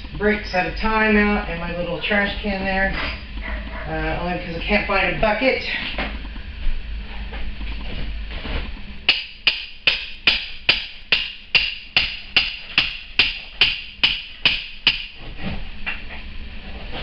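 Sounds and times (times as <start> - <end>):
hammer striking metal spike: 9.1 - 15.1.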